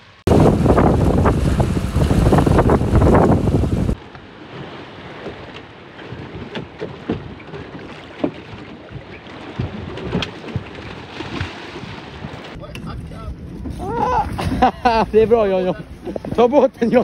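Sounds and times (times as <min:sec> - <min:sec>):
wind-blown rush: 0:00.1 - 0:05.5
water splashing against boat: 0:00.2 - 0:17.0.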